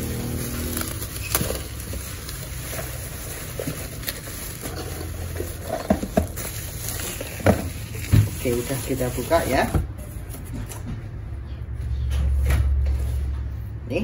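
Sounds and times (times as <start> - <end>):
sharp crackles and clicks: 0.0 - 9.6
bubble wrap crinkling: 0.0 - 10.6.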